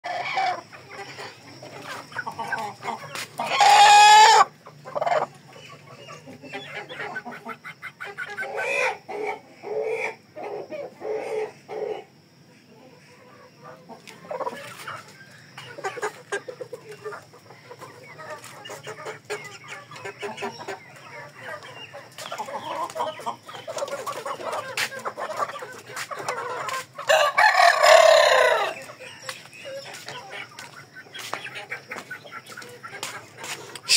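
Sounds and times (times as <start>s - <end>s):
chickens clucking: 0.0s - 33.9s
rooster crowing: 27.0s - 28.9s.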